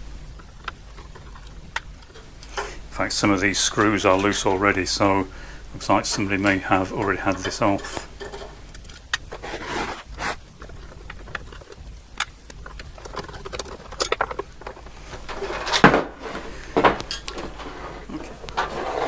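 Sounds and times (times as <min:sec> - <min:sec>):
handling knocks: 0:12.6 - 0:17.7.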